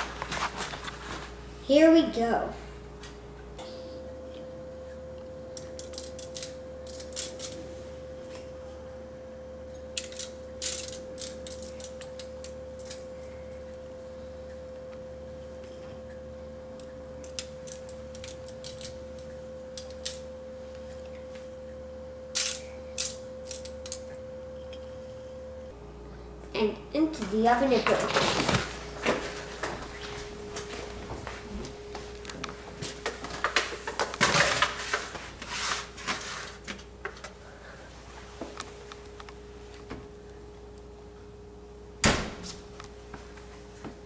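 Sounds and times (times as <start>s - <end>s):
steady high tone: 18.9s - 25.8s
hands rubbing meat in foil pan: 34.6s - 36.7s.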